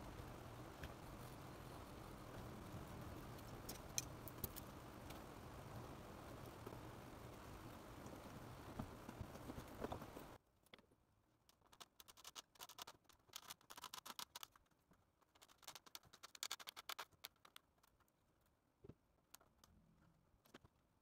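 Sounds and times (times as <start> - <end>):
skewer scratching and clicking foam: 0.8 - 5.2, 11.4 - 18.6.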